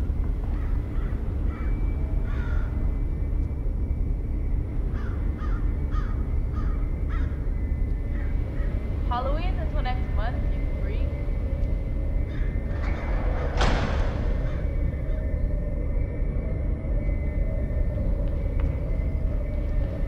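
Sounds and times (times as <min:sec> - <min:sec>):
steady low rumble: 0:00.0 - 0:20.0
crow cawing: 0:00.6 - 0:02.8, 0:05.0 - 0:08.8, 0:12.3 - 0:12.7.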